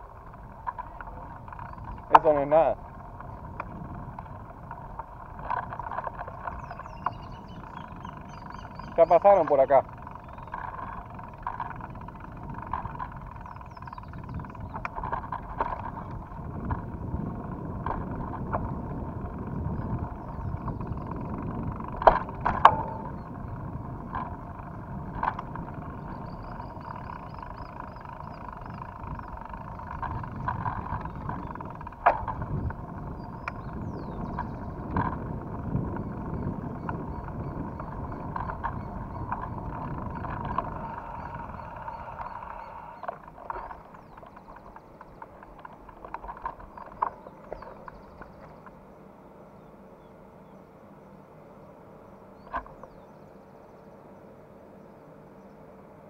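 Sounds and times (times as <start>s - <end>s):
bike rattling over dirt path: 0.0s - 48.9s
bike knocking over bumps: 9.8s - 42.5s.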